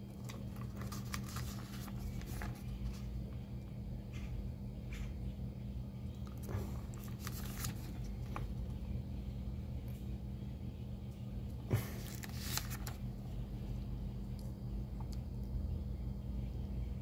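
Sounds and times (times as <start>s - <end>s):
paper pages rustling: 0.1s - 3.1s, 6.4s - 8.6s, 11.8s - 13.0s.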